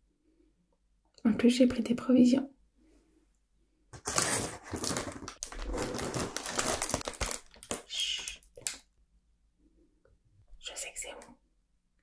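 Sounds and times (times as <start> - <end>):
snack bag crinkling: 4.0 - 8.8.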